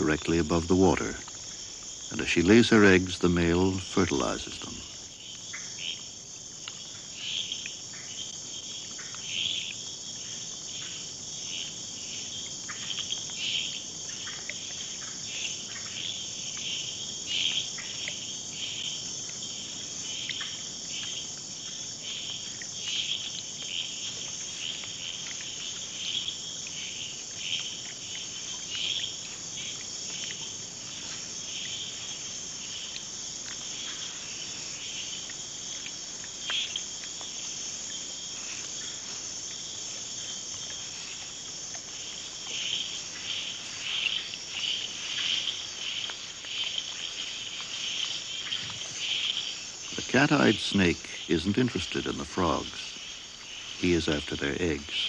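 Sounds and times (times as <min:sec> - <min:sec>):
insect chirps: 0:00.0 - 0:55.0
insects trilling: 0:00.0 - 0:55.0.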